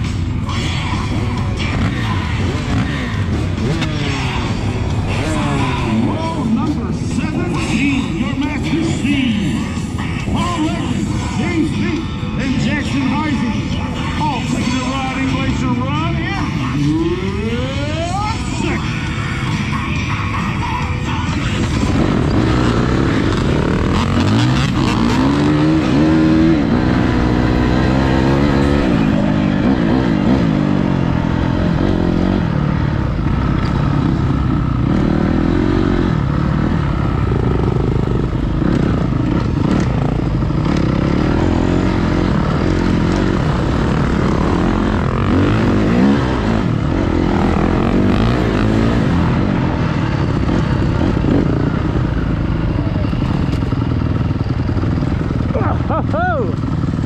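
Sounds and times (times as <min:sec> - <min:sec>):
dirt bike engine revving: 0:00.0 - 0:19.2, 0:21.3 - 0:57.0.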